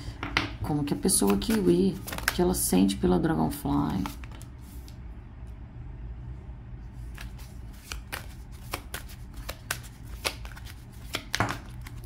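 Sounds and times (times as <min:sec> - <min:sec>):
low steady hum: 0:00.0 - 0:12.0
cards shuffling: 0:00.9 - 0:02.4, 0:03.8 - 0:05.0, 0:07.0 - 0:12.0.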